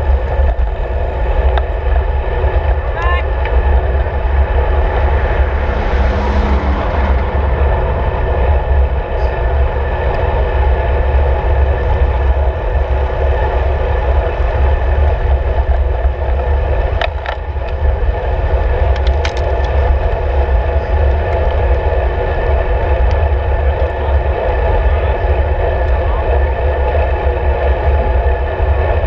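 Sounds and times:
tyre and road noise: 0.0s - 29.0s
wind buffeting microphone: 0.0s - 29.0s.

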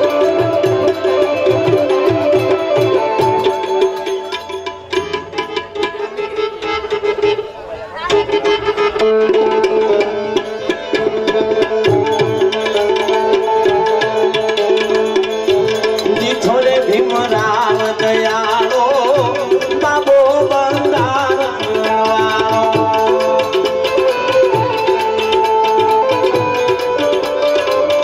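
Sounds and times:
wavering melody line: 0.0s - 17.4s
harmonium melody over drone: 0.0s - 28.0s.

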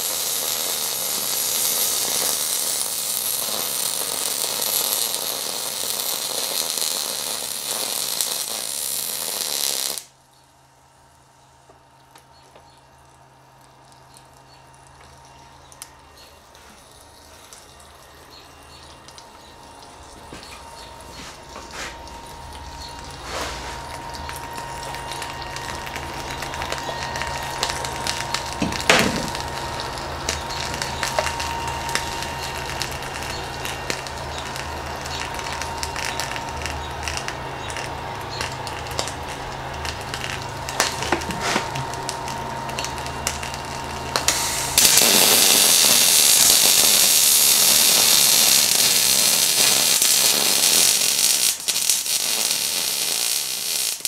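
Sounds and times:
welder arc crackling hiss: 0.0s - 10.2s, 11.1s - 54.0s
low hum with faint tone: 10.0s - 52.7s
scattered ticks and crackles: 11.1s - 44.3s.

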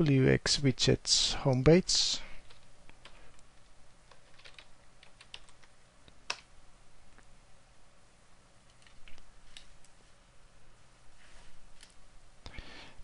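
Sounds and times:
computer keyboard typing: 4.1s - 6.5s.

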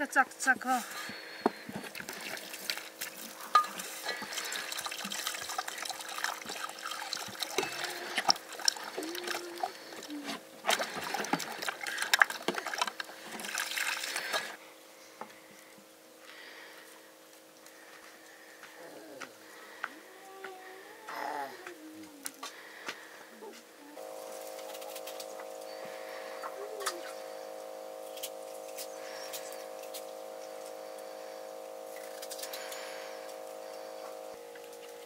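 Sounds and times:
water splashing and trickling: 1.8s - 14.6s.

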